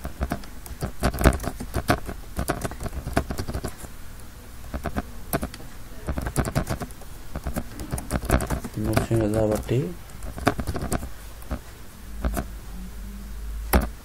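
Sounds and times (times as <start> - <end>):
computer keyboard typing: 0.0 - 3.9, 4.7 - 11.6, 12.2 - 12.5, 13.7 - 14.0.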